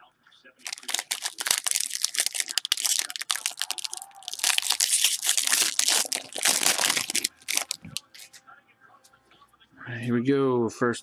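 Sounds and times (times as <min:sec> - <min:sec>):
foil wrapper crinkling and tearing: 0:00.6 - 0:08.4.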